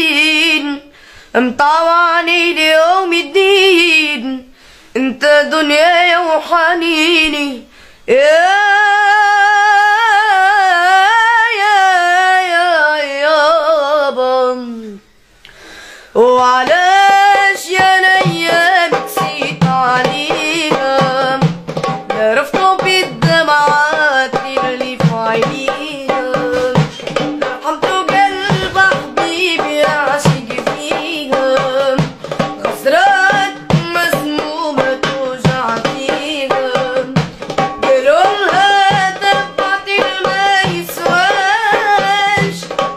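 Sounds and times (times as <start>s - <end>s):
boy singing ornamented melody: 0.0s - 15.1s, 16.2s - 42.8s
hand drums beating: 16.4s - 42.9s.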